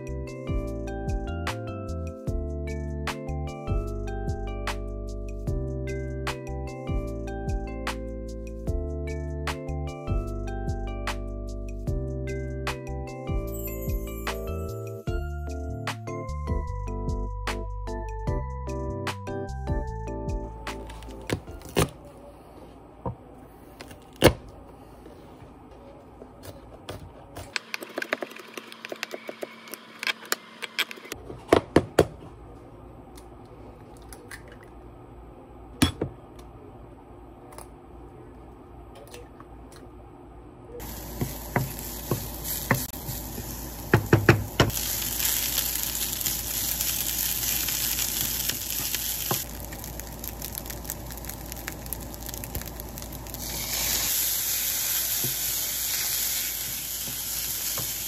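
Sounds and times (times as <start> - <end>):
food sizzling in frying pan: 40.8 - 58.0.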